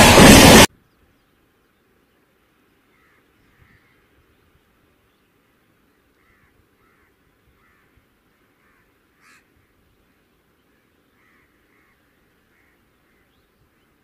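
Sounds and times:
short sharp sound: 0.0s - 0.7s
low steady hiss: 0.7s - 14.0s
faint bird calls: 2.7s - 14.0s.

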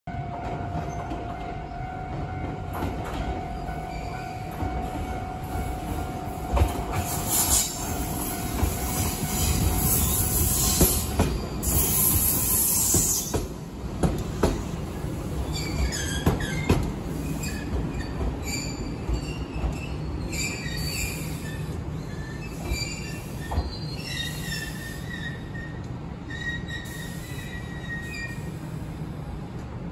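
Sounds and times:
low train rumble: 0.1s - 29.9s
train wheels squealing on rails: 0.4s - 29.3s
clacks over rail joints: 12.9s - 14.7s, 15.6s - 20.0s.

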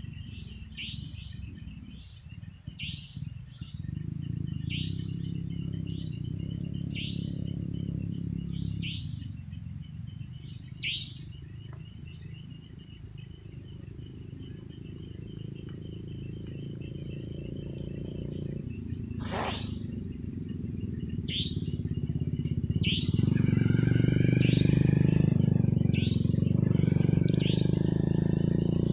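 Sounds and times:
frogs croaking: 0.0s - 28.9s
sharp animal call: 19.2s - 19.8s
short chirps: 19.2s - 19.8s.

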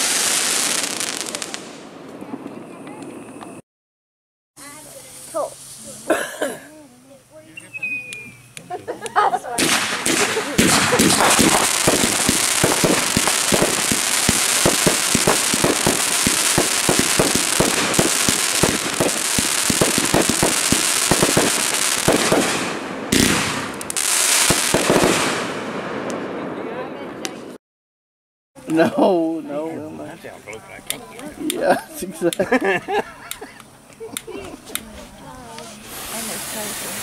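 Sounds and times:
firework hiss: 0.0s - 1.8s, 4.6s - 6.2s, 9.6s - 25.6s, 35.6s - 37.0s
firework pops and crackles: 9.6s - 26.2s.

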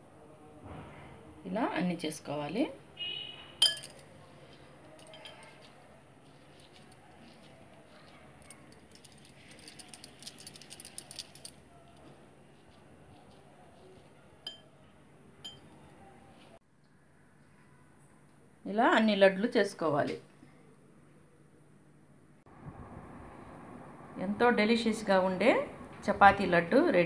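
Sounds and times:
hands clinking glass bowl: 3.6s - 4.0s, 14.5s - 14.7s.

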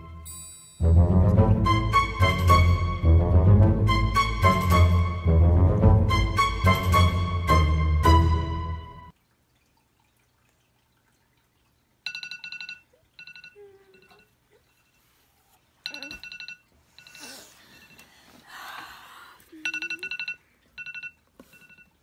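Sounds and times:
phone alarm beeping: 12.1s - 14.2s, 19.6s - 22.0s.

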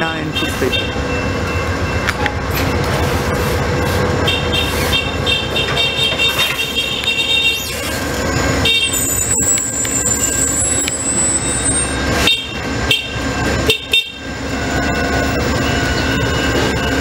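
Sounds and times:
train cars rumbling: 0.0s - 17.0s
high-pitched wheel squeals: 4.7s - 13.2s.

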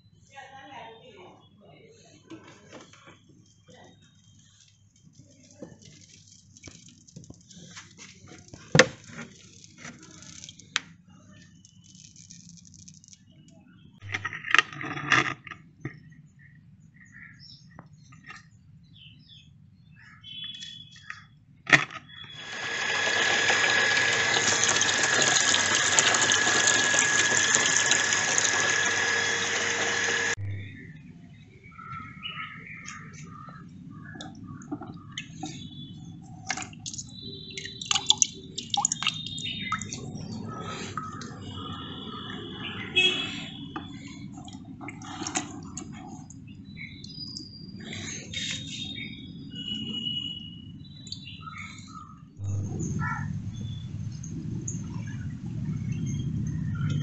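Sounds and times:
water pouring into a plastic bucket: 22.3s - 30.4s, 36.5s - 40.0s
small splashes: 36.4s - 42.0s.

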